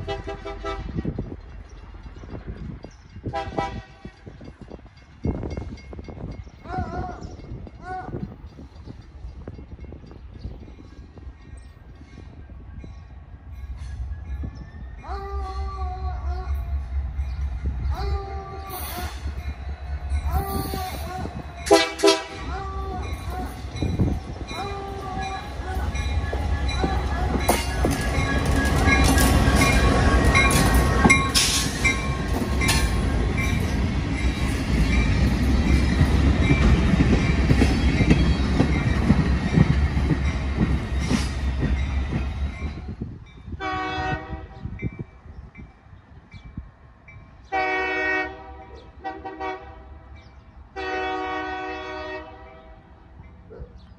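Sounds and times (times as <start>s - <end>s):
train horn blasts: 0.0s - 1.1s, 3.3s - 4.2s, 20.3s - 23.8s, 43.5s - 44.8s, 47.5s - 50.2s, 50.8s - 53.0s
train passing: 0.0s - 53.9s
wheels clicking over rail joints: 20.3s - 42.3s.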